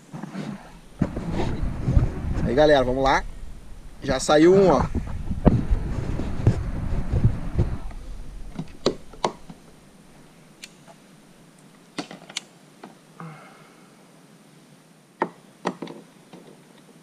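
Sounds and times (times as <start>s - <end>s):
camera handling rumble and thumps: 0.8s - 4.0s, 4.6s - 10.3s.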